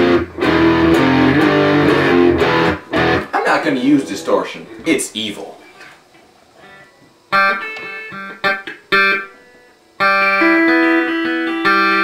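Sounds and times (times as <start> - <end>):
clean electric guitar: 0.0 - 3.4, 6.6 - 12.0.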